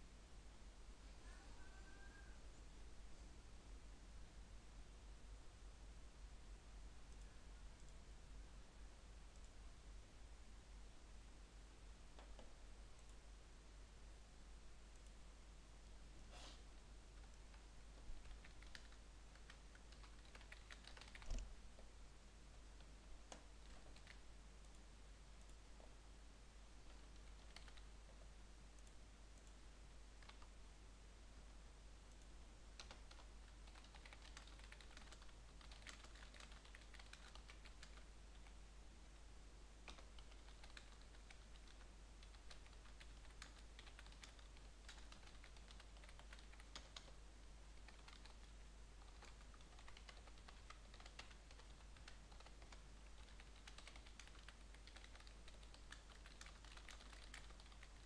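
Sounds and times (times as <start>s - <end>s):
computer keyboard typing: 18.2s - 21.5s, 23.3s - 24.2s, 26.8s - 27.9s, 30.2s - 30.5s, 32.1s - 38.6s, 39.8s - 47.2s, 47.8s - 58.0s.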